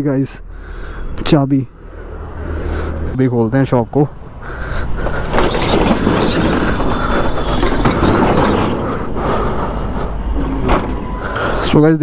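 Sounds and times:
metal rolling shutter rattling: 5.0 - 11.2.

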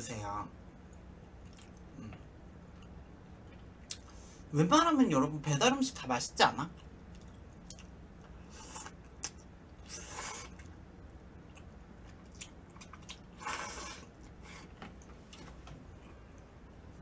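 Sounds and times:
mouth clicks and chewing: 1.4 - 1.9, 6.8 - 8.0.

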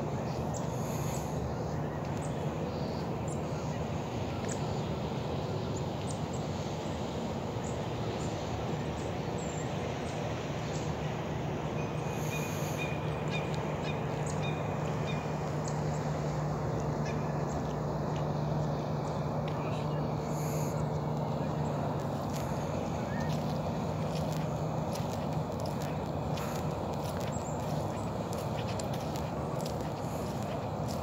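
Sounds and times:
low hum: 10.4 - 31.0.

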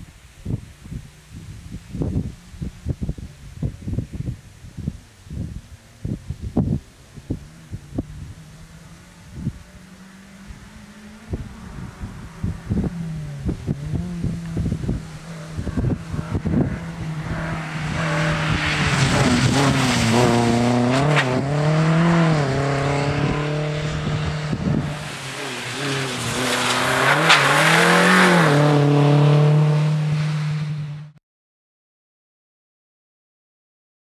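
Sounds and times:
wind buffeting microphone: 0.0 - 9.8, 10.4 - 25.2
rally car engine revving hard: 7.3 - 31.1
tyre noise on wet tarmac: 13.0 - 23.1, 24.8 - 30.8.

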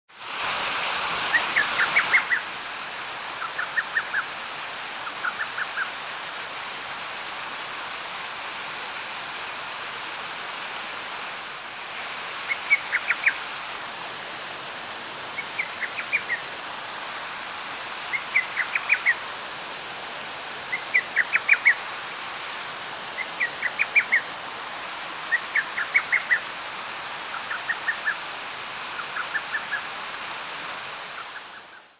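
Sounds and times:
steady hiss: 0.2 - 31.9.

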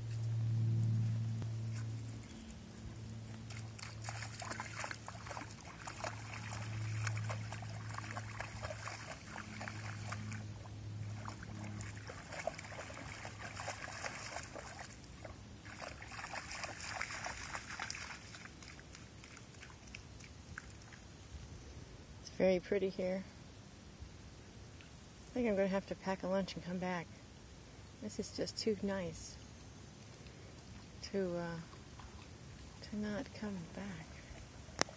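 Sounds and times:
dog splashing through water: 3.2 - 21.0.

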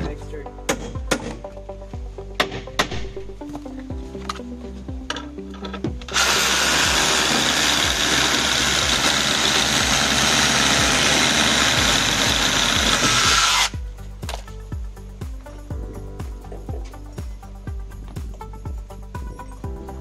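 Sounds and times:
soft background music: 0.0 - 20.0
hammer drill drilling into concrete: 6.1 - 13.7.

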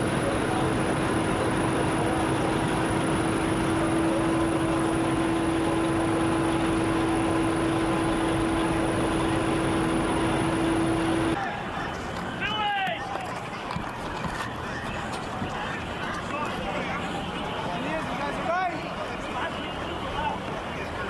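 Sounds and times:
low droning tone: 0.0 - 11.4
steady rushing noise: 0.0 - 12.5.

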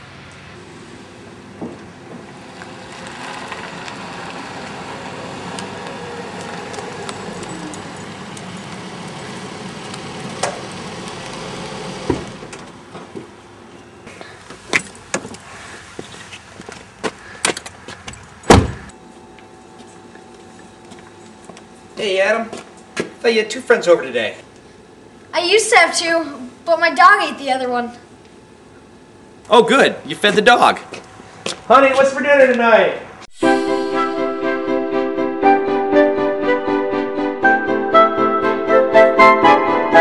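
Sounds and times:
car engine and tyre noise: 0.0 - 22.0
car door slamming: 11.8 - 13.2, 18.5 - 18.9.

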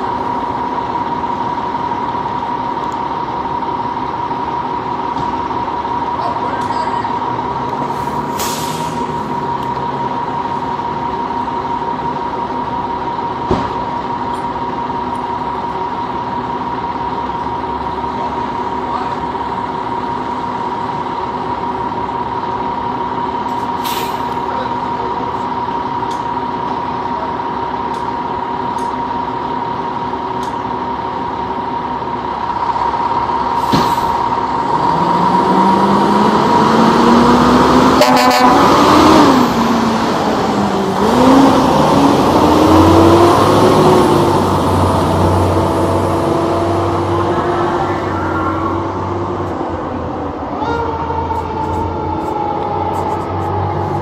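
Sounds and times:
diesel engine idling and revving: 0.0 - 54.0
short air hisses: 7.9 - 9.1, 23.8 - 24.3.

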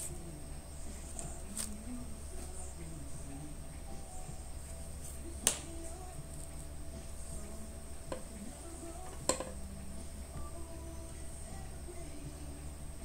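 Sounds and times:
steady low hum: 0.0 - 13.0
clicks on a hard surface: 9.1 - 9.6.

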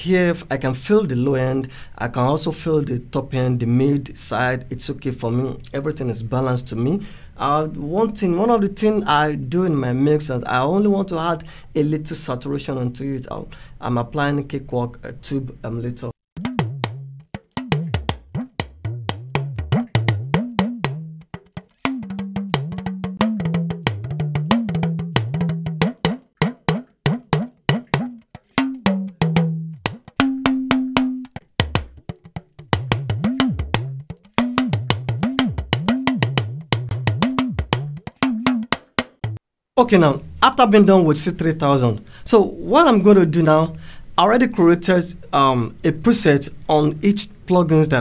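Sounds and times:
talking drum strokes: 21.8 - 39.4.

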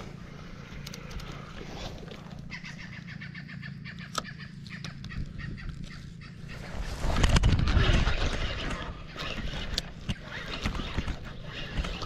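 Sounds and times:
bird calling in rapid notes: 2.4 - 7.0.

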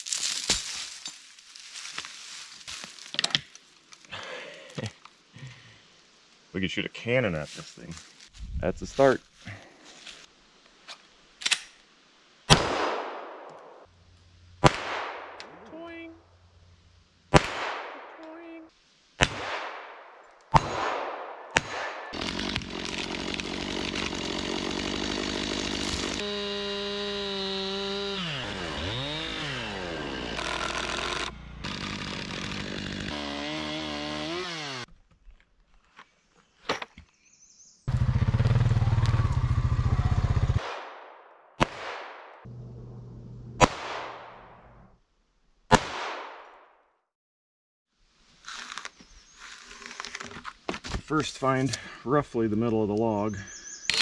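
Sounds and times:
pistol shots: 19.2 - 22.2, 40.6 - 42.3, 43.6 - 44.4, 45.7 - 46.4
chainsaw revving: 22.2 - 34.9.

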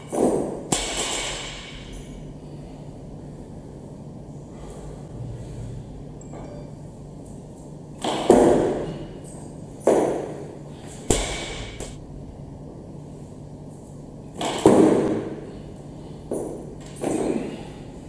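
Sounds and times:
barbell impact with ringing: 6.2 - 6.9.

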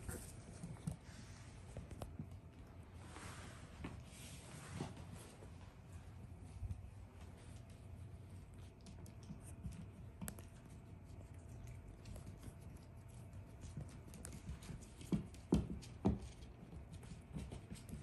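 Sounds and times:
puppy paws pattering on hard floor: 0.0 - 18.0.

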